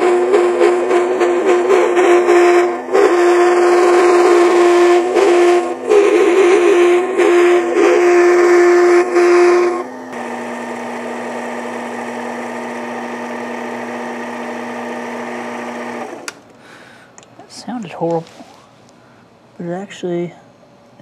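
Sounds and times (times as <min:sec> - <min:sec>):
lathe tool chattering and squealing: 0:00.0 - 0:16.4
lathe motor whine: 0:00.0 - 0:16.5.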